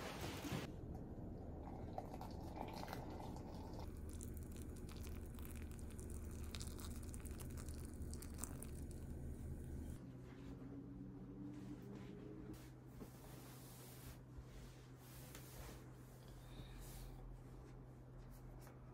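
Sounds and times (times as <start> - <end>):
low steady hum: 0.0 - 18.9
water pouring from kettle: 1.6 - 9.1.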